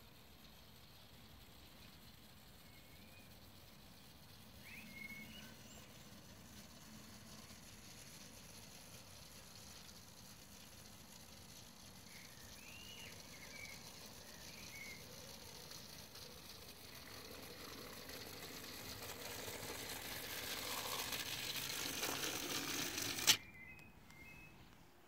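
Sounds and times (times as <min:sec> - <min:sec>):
clockwork toy train whirring: 0:00.0 - 0:23.4
toy train knocking buffer stop: 0:07.3 - 0:23.4.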